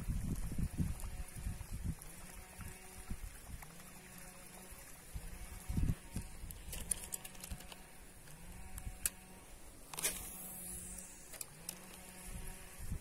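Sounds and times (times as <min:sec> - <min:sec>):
fishing reel whirring: 0:00.0 - 0:13.0
reel clicks: 0:05.5 - 0:12.6.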